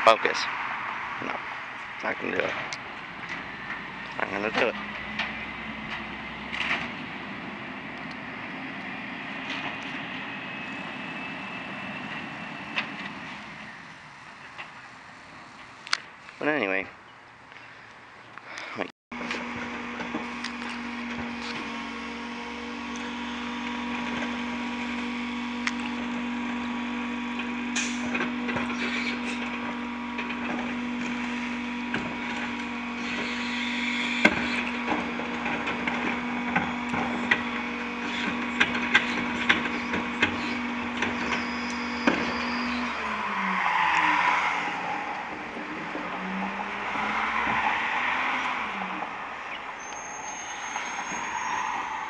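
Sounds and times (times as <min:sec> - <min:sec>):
garbage truck running hum: 0:02.4 - 0:14.5, 0:19.1 - 0:43.9, 0:44.6 - 0:47.6
carts banging against hopper: 0:31.9 - 0:42.6.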